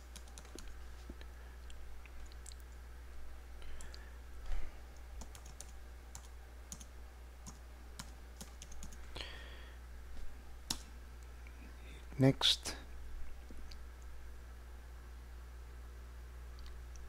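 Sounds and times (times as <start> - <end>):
keyboard keys clicking: 0.0 - 0.7, 5.2 - 9.0
steady low hum: 0.0 - 17.0.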